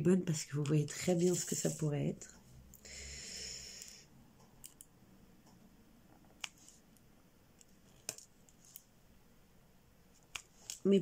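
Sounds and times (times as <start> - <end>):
soft rustle: 0.8 - 2.6.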